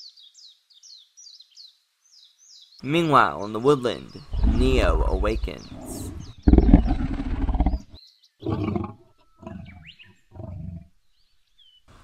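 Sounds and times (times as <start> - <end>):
faint bird chirps: 3.9 - 12.0
dinosaur roar: 4.1 - 10.9
growls: 4.2 - 11.0.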